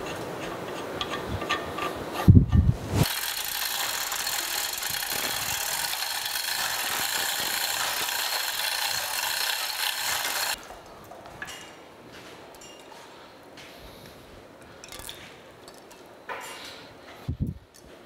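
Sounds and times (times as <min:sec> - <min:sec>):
electric chain hoist running: 0:03.0 - 0:10.6.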